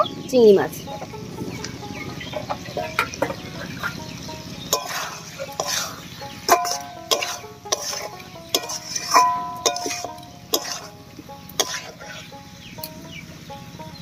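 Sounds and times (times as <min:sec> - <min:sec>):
plucked string music: 0:00.0 - 0:14.0
spatula clanking on metal pan: 0:02.2 - 0:13.0.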